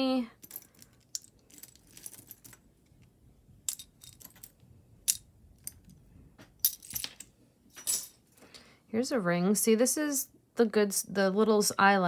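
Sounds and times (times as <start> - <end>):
metal jewelry clinking: 0.3 - 8.3.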